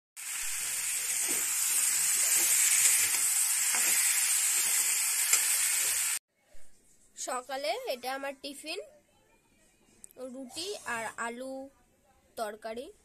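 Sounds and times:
vegetables sizzling in oil: 0.2s - 6.2s
metal spatula stirring: 1.1s - 5.6s.

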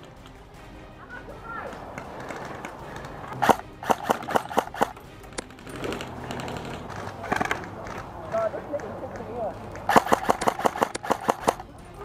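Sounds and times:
airsoft rifle shots: 3.3s - 5.0s, 9.9s - 11.7s.

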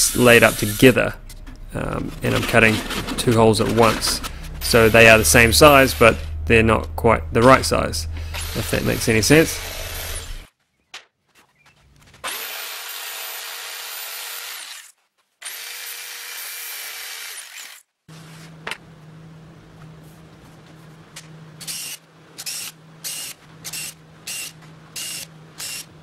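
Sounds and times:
cordless drill driving screws: 8.2s - 10.5s, 12.2s - 17.8s, 21.6s - 25.9s
jigsaw cutting plywood: 12.2s - 17.8s.

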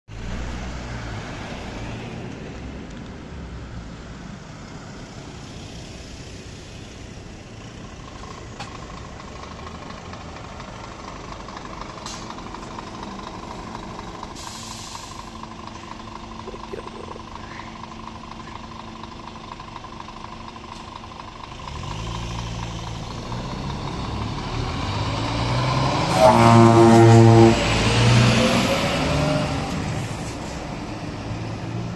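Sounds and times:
diesel truck engine approaching: 0.1s - 31.9s
air brakes hiss: 14.4s - 15.3s.

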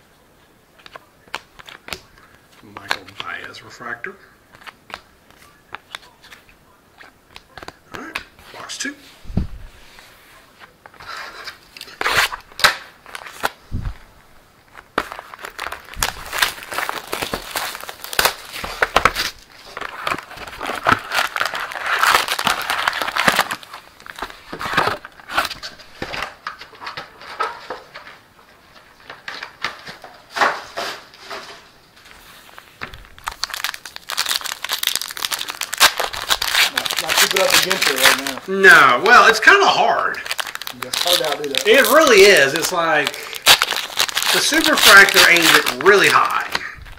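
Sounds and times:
plastic wrap crinkling and tearing: 11.0s - 14.0s, 14.6s - 28.1s, 32.2s - 46.9s.

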